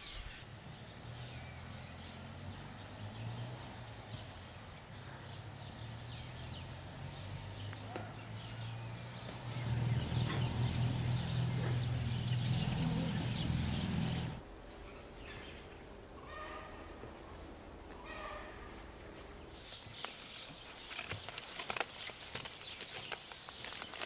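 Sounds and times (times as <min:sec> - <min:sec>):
small birds chirping: 0:00.0 - 0:24.0.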